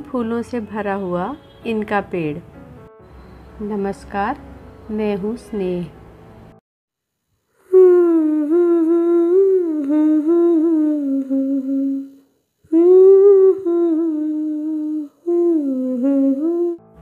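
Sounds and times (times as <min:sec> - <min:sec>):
person humming: 0:07.5 - 0:16.9.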